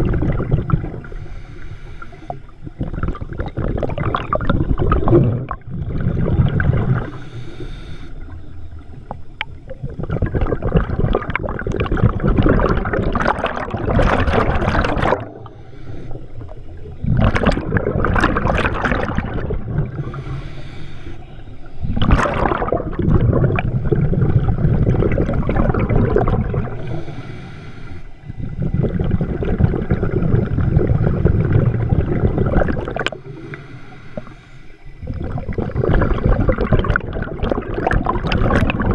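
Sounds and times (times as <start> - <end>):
gurgling exhaled bubbles: 0.0 - 1.4, 2.1 - 7.6, 8.2 - 20.5, 21.6 - 27.2, 28.2 - 34.3, 34.9 - 38.9
hissing regulator inhalations: 1.0 - 2.6, 7.0 - 8.6, 15.4 - 16.9, 19.8 - 22.0, 26.7 - 28.7, 33.1 - 36.7.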